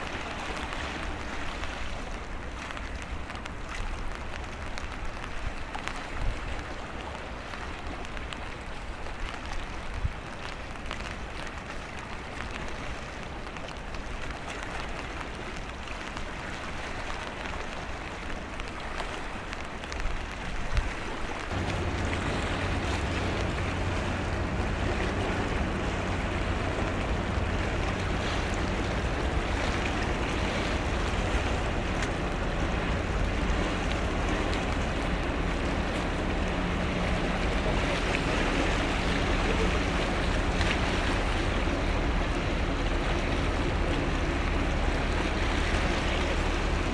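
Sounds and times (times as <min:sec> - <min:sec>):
water noise: 0:00.0 - 0:46.9
wind buffeting microphone: 0:00.0 - 0:46.9
ship machinery drone: 0:21.0 - 0:46.9.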